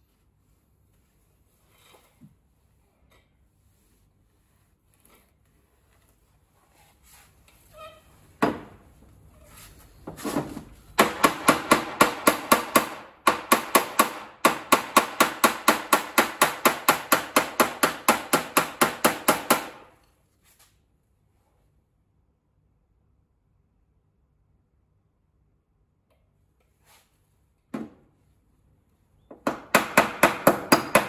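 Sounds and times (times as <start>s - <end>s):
hammer tapping metal: 29.4s - 31.0s.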